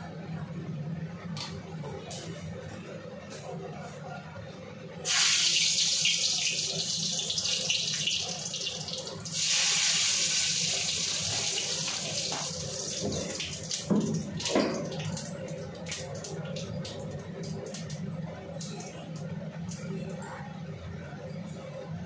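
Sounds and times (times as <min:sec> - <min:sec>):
spices sizzling in hot oil: 0:05.1 - 0:13.4.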